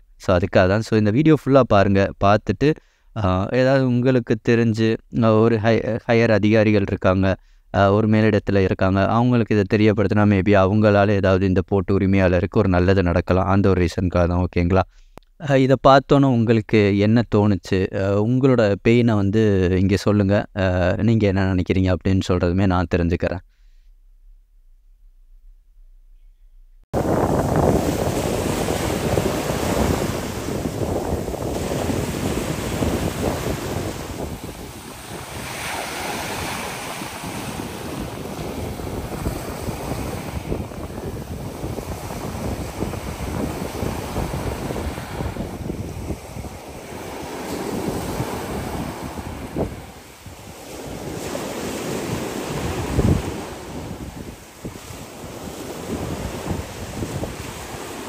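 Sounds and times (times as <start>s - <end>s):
wind buffeting microphone: 26.9s - 58.0s
sea waves breaking on rocks: 27.0s - 58.0s.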